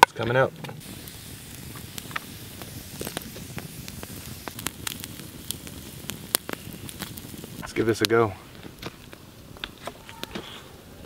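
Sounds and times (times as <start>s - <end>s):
campfire crackling and popping: 0.0s - 11.0s.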